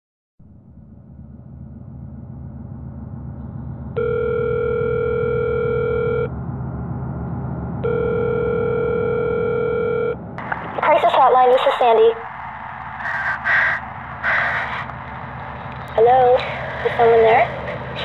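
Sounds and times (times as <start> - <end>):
low rumbling drone: 0.4 - 18.0
telephone ringing tone: 4.0 - 6.3, 7.8 - 10.2.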